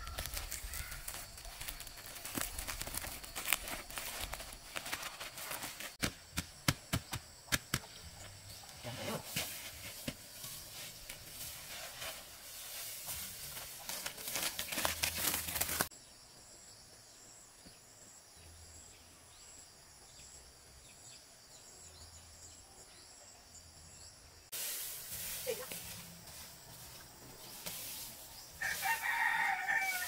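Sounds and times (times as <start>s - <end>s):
plastic sack rustling: 0.0s - 6.0s, 11.5s - 15.9s.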